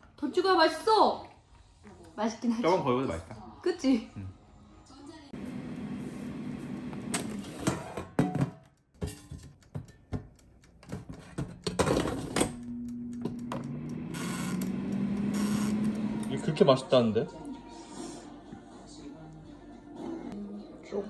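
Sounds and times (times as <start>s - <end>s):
air fryer fan humming: 5.4s - 7.5s, 12.4s - 17.2s.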